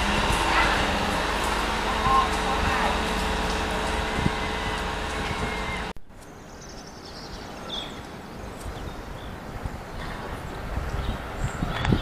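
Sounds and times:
distant diesel train hum: 0.0 - 5.9.

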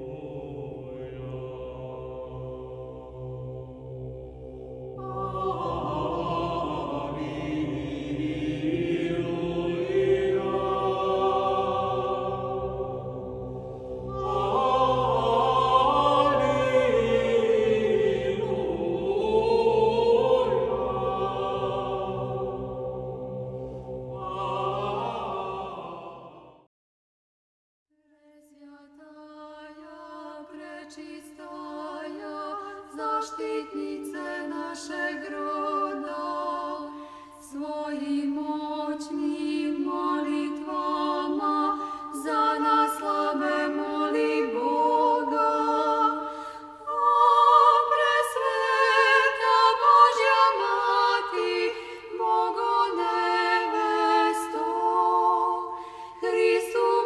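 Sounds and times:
low vocal drone: 0.0 - 26.6
choir chanting: 0.0 - 26.7, 28.5 - 57.0.

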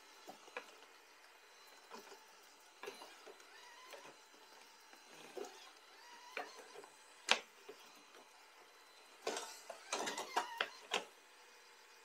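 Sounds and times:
robot vacuum clattering: 9.2 - 11.1.

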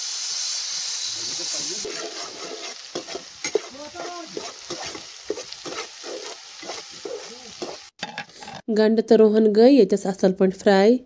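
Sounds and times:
onions sizzling in hot oil: 0.0 - 8.6
metal spatula scraping a pan: 1.5 - 8.7.

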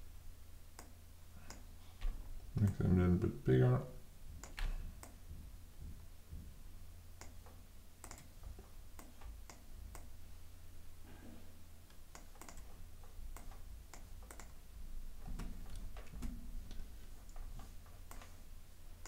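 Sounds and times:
low steady hum: 0.0 - 19.0
mouse and keyboard clicks: 7.2 - 8.3, 12.1 - 12.8, 13.4 - 14.6.

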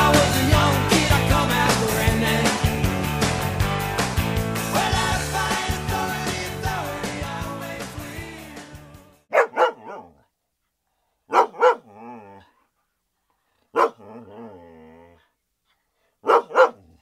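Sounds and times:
music: 0.0 - 9.3
dog barking: 9.3 - 10.3, 11.3 - 12.2, 13.7 - 14.6, 16.2 - 17.0
dog whining: 9.4 - 10.2, 11.3 - 12.6.

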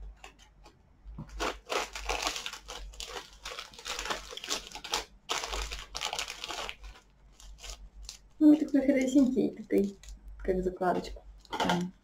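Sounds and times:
wrapping crinkling: 1.2 - 10.3.

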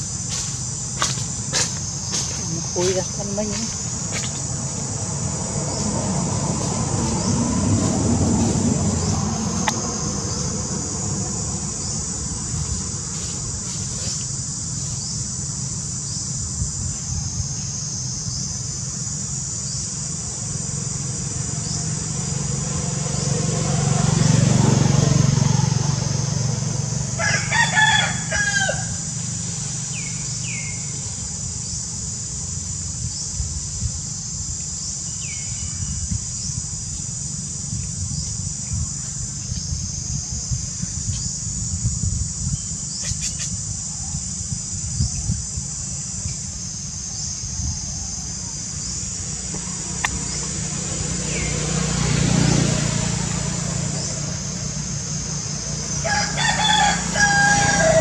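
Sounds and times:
high insect drone: 0.0 - 58.0
rooster crowing: 27.1 - 29.2, 55.9 - 58.0.

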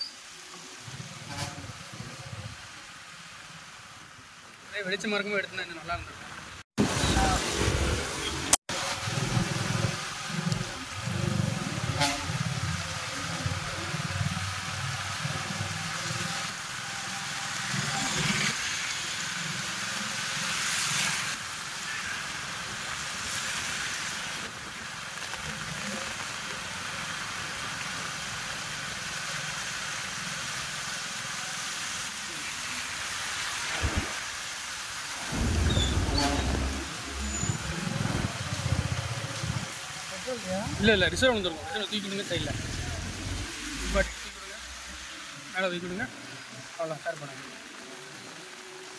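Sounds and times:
heavy rain hissing: 0.0 - 48.9
vehicles on wet road: 0.0 - 48.9
low rumble: 35.2 - 39.7, 42.3 - 44.2.

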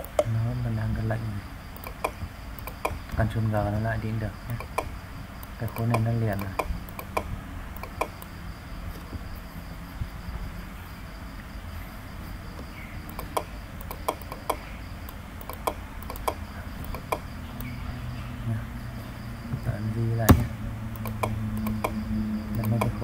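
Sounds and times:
computer mouse clicks: 0.0 - 0.3, 1.8 - 3.3, 4.5 - 8.3, 12.5 - 17.8, 21.0 - 23.0
low steady hum: 0.0 - 23.0.

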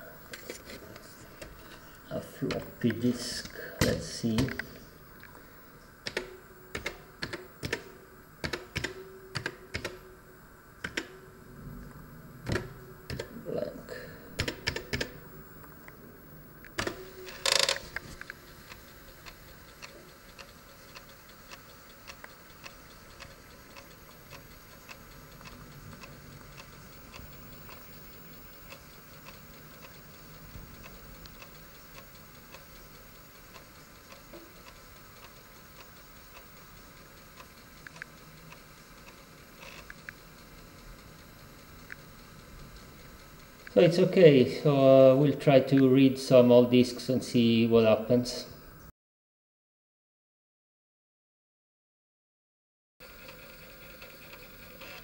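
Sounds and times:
low drive hum: 0.0 - 48.9
floppy drive ticking: 10.8 - 46.5.

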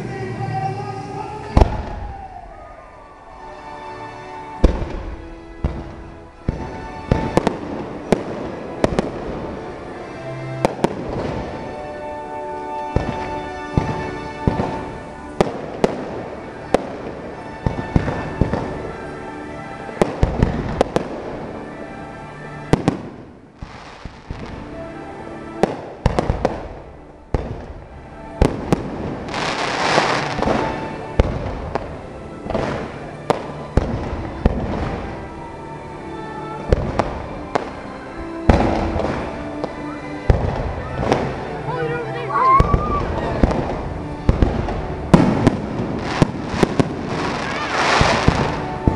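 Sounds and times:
fireworks crackling: 0.0 - 48.9
music playing: 0.0 - 48.9
fireworks bangs and pops: 1.6 - 2.1, 4.6 - 9.7, 10.6 - 11.8, 12.9 - 19.0, 19.9 - 21.5, 22.6 - 24.8, 25.6 - 35.2, 36.7 - 37.8, 38.4 - 41.5, 42.6 - 48.9.

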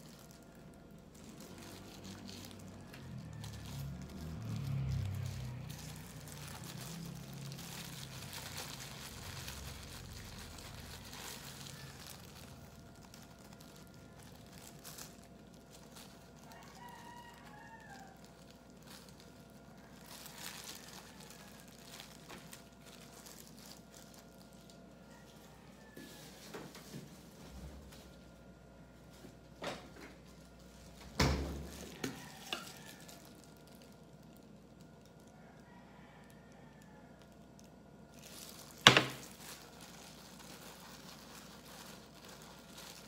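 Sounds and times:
rooster crowing: 1.3 - 13.2, 16.0 - 19.0, 19.6 - 22.2, 24.9 - 27.0, 31.6 - 33.7, 35.2 - 37.4.

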